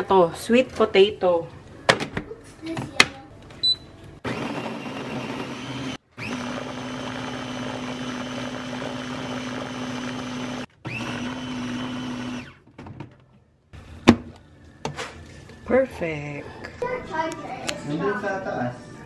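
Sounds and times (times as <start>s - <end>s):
blender motor running: 4.2s - 12.6s.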